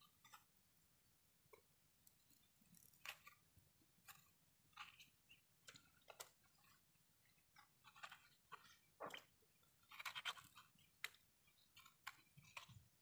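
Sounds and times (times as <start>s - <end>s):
knife clicking and scraping coconut: 9.8s - 13.0s.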